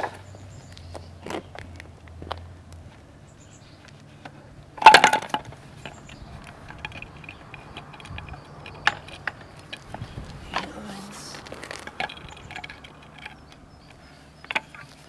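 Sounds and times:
metal struts clanking on steel rails: 0:04.8 - 0:15.0.

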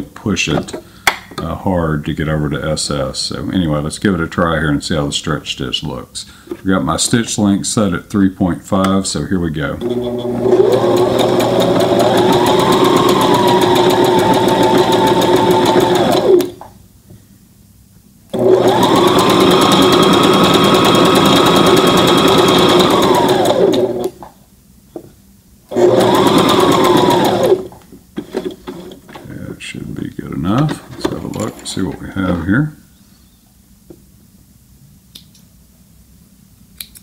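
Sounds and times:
sewing machine motor whine: 0:09.8 - 0:16.5, 0:18.4 - 0:24.2, 0:25.7 - 0:27.7.

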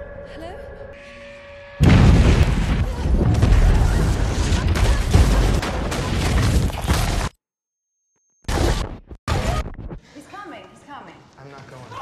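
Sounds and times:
rumbling crash of cave-in: 0:01.8 - 0:07.3.

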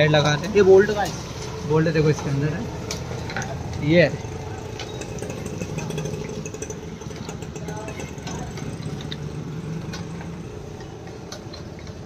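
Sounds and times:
engine idling: 0:04.3 - 0:12.0.

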